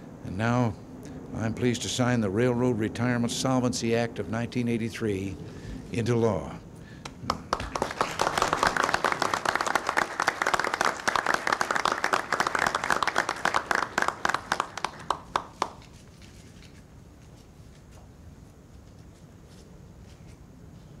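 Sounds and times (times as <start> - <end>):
crowd applauding: 7.0 - 15.9.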